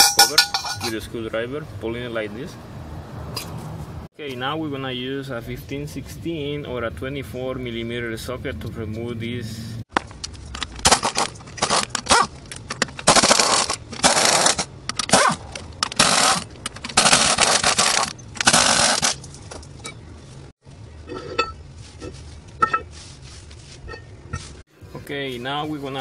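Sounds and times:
light metal clinks: 0.0s - 1.0s
pneumatic impact wrench bursts: 13.0s - 15.4s, 16.0s - 19.2s.

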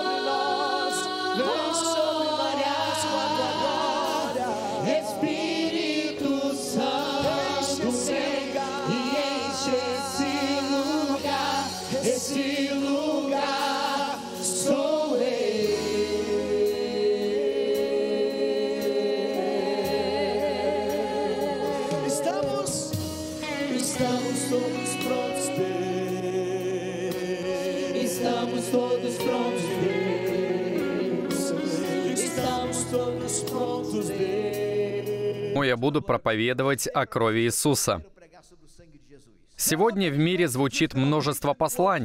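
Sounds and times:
group singing gospel song: 0.0s - 35.6s
sustained backing chords: 0.0s - 35.6s.

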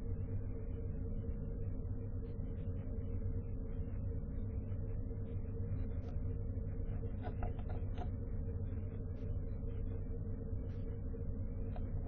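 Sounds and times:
low electrical hum and hiss: 0.0s - 12.0s.

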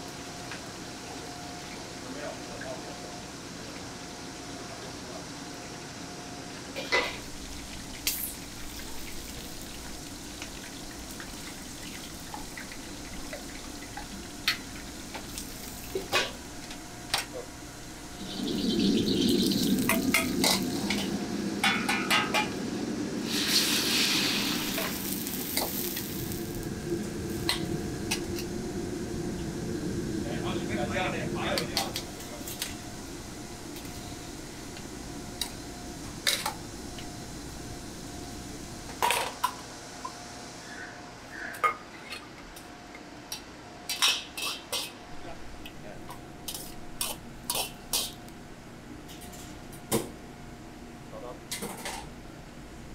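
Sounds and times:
deep-frying sizzle in a wok: 0.0s - 41.6s, 42.6s - 52.6s
kitchen range noise: 6.7s - 26.7s, 43.3s - 48.4s, 51.4s - 52.2s.

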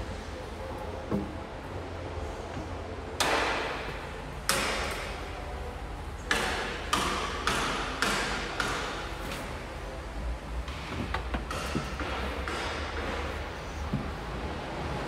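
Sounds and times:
steady low hum: 0.0s - 15.0s
sharp knocks with echo: 3.2s - 5.2s, 6.3s - 9.0s, 10.7s - 13.4s.

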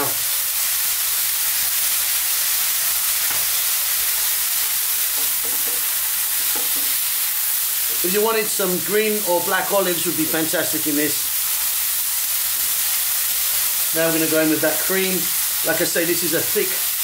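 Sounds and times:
food sizzling in a frying pan: 0.0s - 17.0s
wooden spatula stirring in pan: 5.0s - 7.1s.

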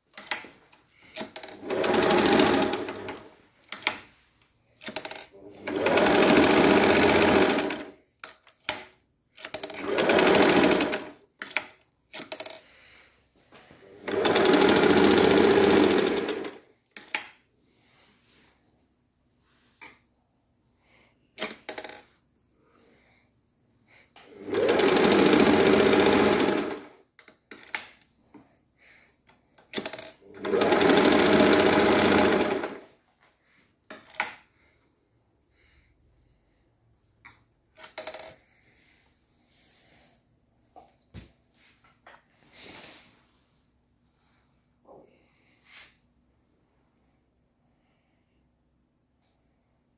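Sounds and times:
sewing machine stitching: 1.1s - 4.1s, 4.8s - 12.6s, 13.8s - 17.2s, 24.2s - 27.0s, 29.7s - 32.9s.

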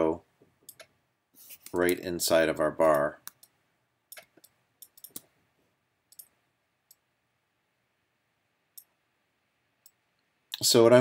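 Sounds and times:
computer mouse clicks: 0.6s - 1.0s, 2.8s - 5.3s, 6.1s - 7.0s.

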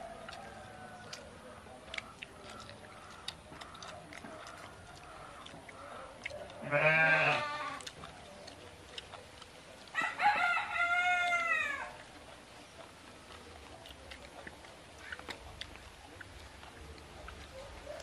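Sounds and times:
short farm animal call: 6.6s - 7.8s
rooster crowing: 9.9s - 12.0s.

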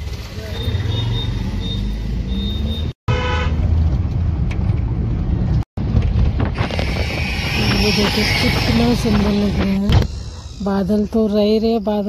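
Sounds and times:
vehicle horn toots: 3.1s - 3.6s.

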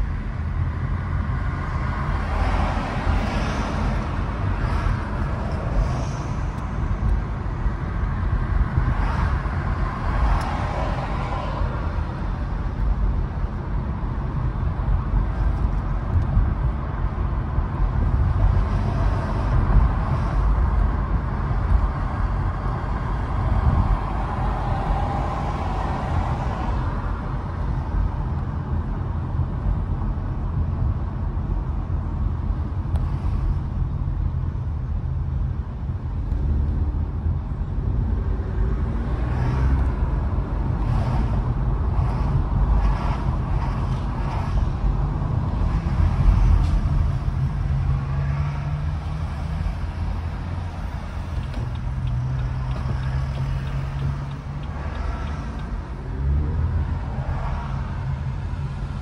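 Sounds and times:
car road noise: 0.0s - 59.0s.

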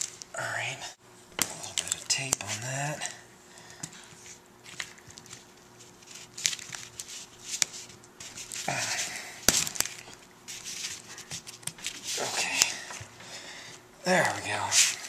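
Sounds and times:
tape rustling: 0.0s - 0.3s, 3.6s - 15.0s.

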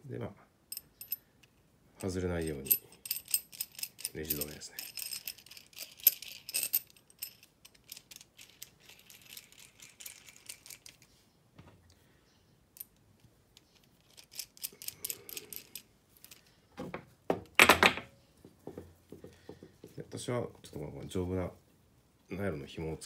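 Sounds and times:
light metallic clinks and rattles: 0.7s - 11.2s, 12.7s - 20.0s.

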